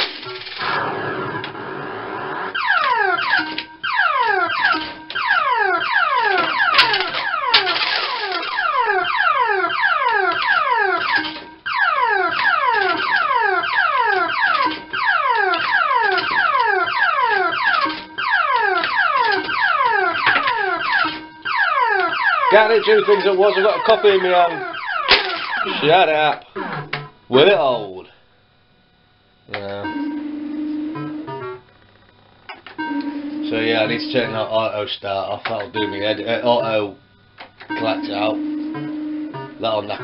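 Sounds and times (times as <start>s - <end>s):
fruit machine falling bleeps: 35.7s - 36.8s, 37.6s - 39.8s.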